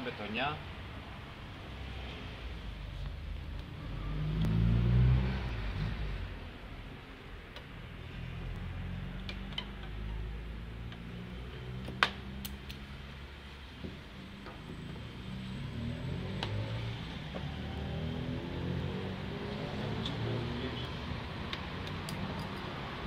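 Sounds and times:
low traffic rumble: 0.0s - 23.0s
passing car engine: 3.7s - 6.5s, 14.1s - 23.0s.

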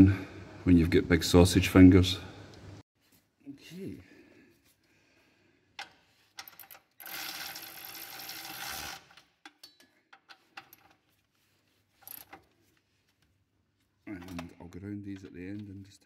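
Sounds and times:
ratchet clicks: 6.4s - 10.9s
cordless ratchet motor running: 7.0s - 9.1s.

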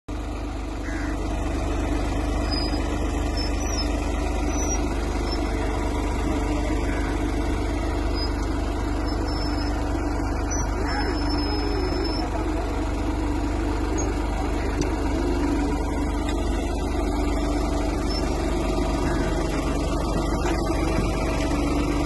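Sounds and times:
tractor engine running: 0.1s - 22.0s.

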